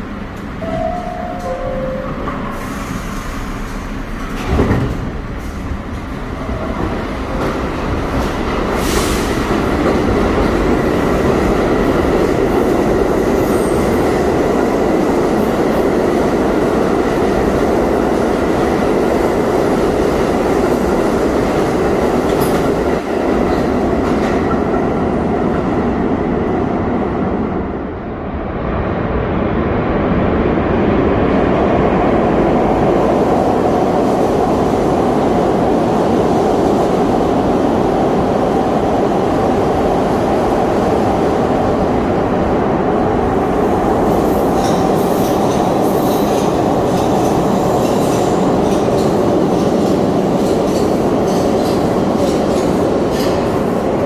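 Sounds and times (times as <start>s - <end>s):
subway train wheel and motor noise: 0.0s - 54.0s
two-note door chime: 0.6s - 2.4s.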